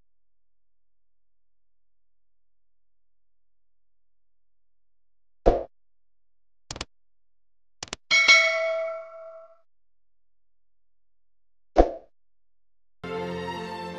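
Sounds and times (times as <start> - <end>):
bell-like ding: 8.1 - 9.6.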